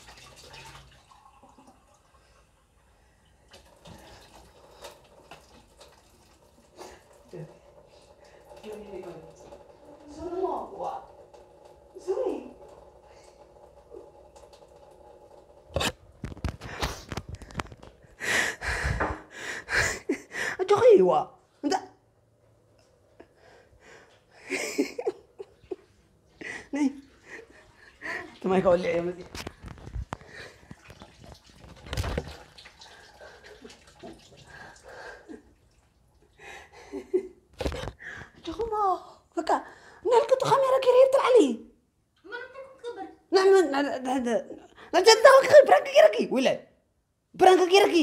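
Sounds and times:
breathy laughter: 24.4 - 28.2.

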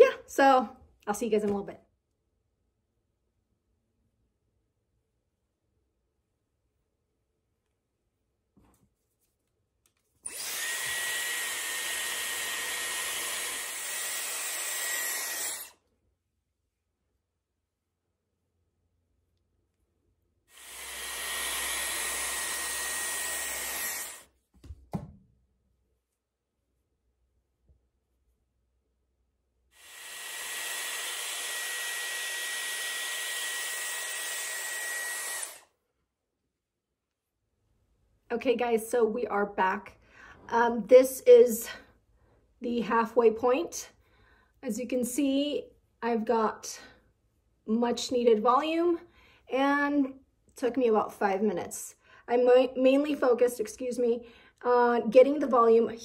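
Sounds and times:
hair styler blowing air with whine: 10.2 - 15.7, 20.5 - 24.3, 29.8 - 35.6.

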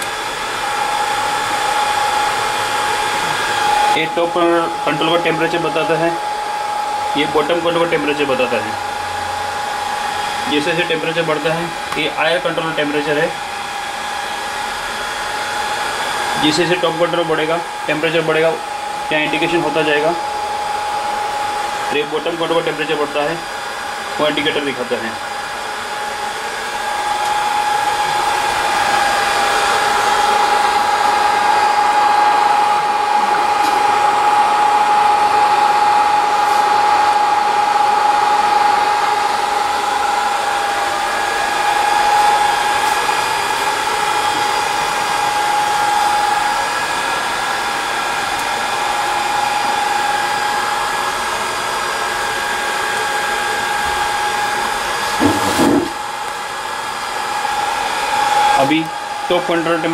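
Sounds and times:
hot-air blowers whining: 0.0 - 59.9.

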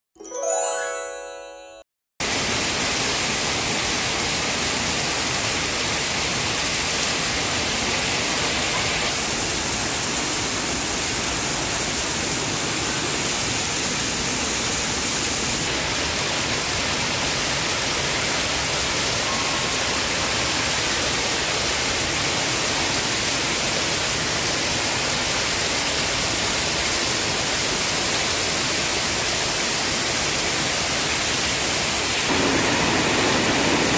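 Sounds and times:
musical logo sting: 0.2 - 1.9
heavy rain through foliage: 2.2 - 33.9.

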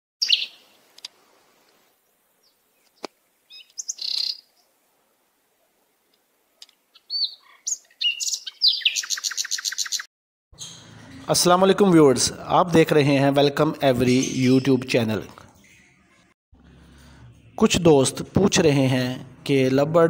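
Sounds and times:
birds chirping: 0.2 - 4.9, 6.5 - 11.2, 13.1 - 18.9.

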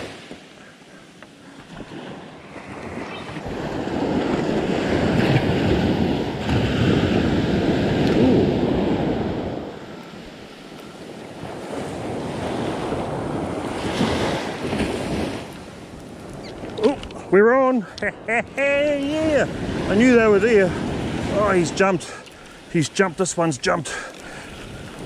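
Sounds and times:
surf washing up a beach: 0.0 - 25.0
wind on microphone: 1.7 - 17.3.

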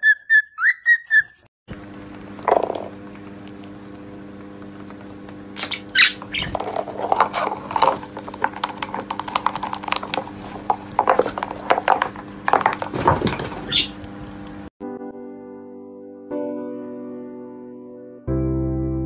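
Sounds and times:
bird chirps: 5.6 - 6.5
plastic box scraping on wood: 6.2 - 13.9.

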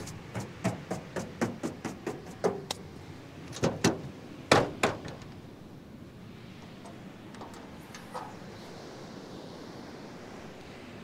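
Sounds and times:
rapid sharp knocks: 0.3 - 2.8.

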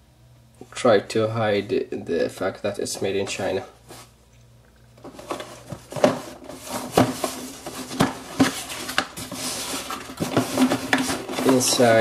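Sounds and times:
cardboard flaps rustling: 5.0 - 12.0.

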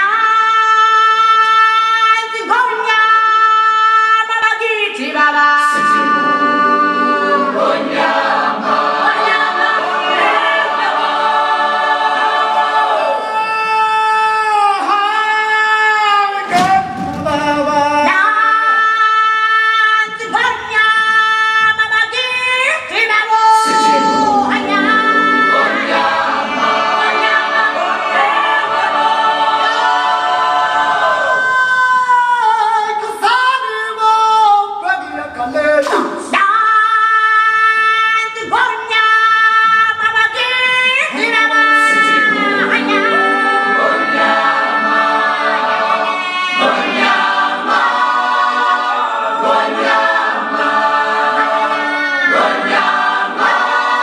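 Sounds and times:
voices singing a chant: 0.0 - 35.1, 35.8 - 54.0
choir holding long chords: 5.7 - 13.8, 23.6 - 31.8, 41.2 - 54.0.

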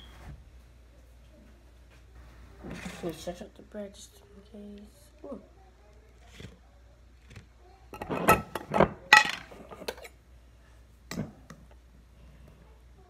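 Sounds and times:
plate and utensils clattering: 8.0 - 10.2.

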